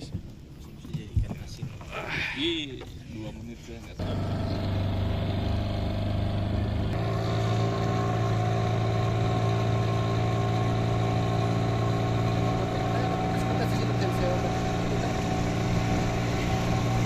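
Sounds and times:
speedboat engine running: 4.0 - 17.0.

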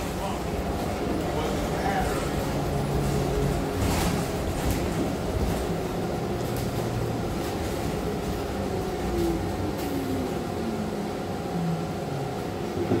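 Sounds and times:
bus engine and road rumble: 0.0 - 13.0
drivetrain whine: 0.0 - 13.0.

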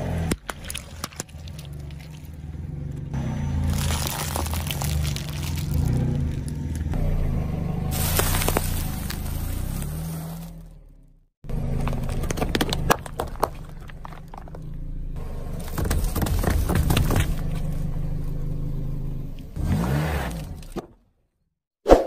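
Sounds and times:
low engine hum: 0.0 - 20.8
foil crackling under tyre: 0.4 - 7.0, 7.9 - 10.6, 11.5 - 18.4
cardboard crunching: 3.7 - 6.9, 7.9 - 10.5, 15.5 - 17.7
water balloons bursting: 7.9 - 10.6.

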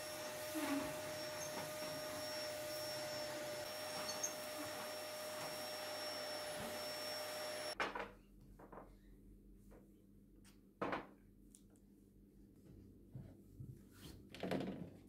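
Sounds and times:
vacuum cleaner whine: 0.0 - 7.8.

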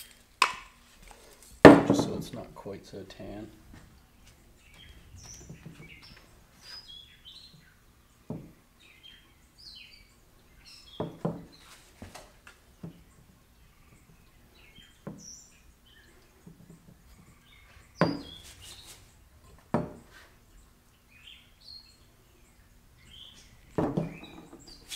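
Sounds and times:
small birds chirping: 1.2 - 24.9
light knocks: 19.4 - 20.3, 23.4 - 24.8.

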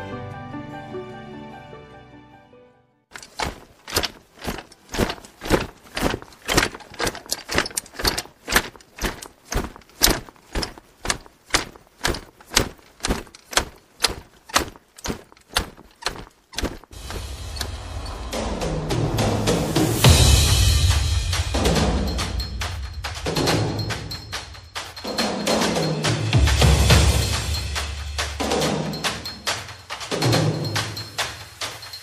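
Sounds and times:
marching footsteps in unison: 3.1 - 32.0
music with drums: 16.9 - 32.0.

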